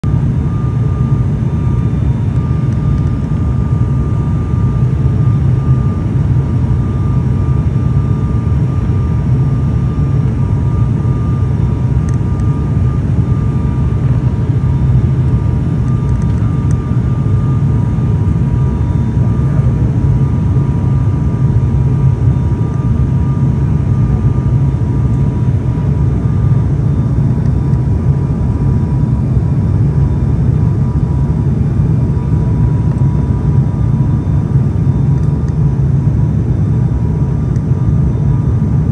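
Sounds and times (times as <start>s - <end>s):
propeller engine drone: 0.0s - 38.9s.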